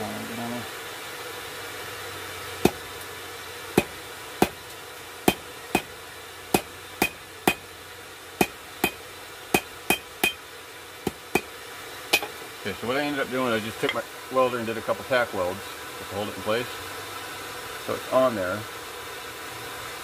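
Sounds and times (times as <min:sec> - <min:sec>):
hammer striking metal: 0:05.3 - 0:05.9, 0:06.5 - 0:07.6, 0:08.4 - 0:10.4.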